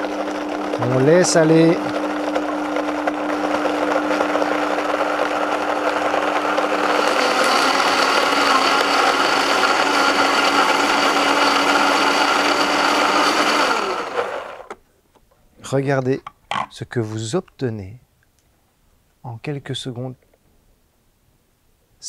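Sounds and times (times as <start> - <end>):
blender running: 0.0 - 14.8.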